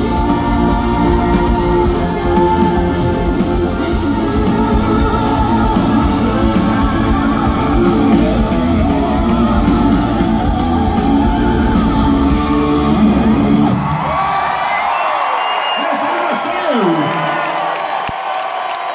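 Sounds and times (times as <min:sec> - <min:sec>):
live rock band playing: 0:00.0 - 0:14.1
electric guitar: 0:00.0 - 0:14.2.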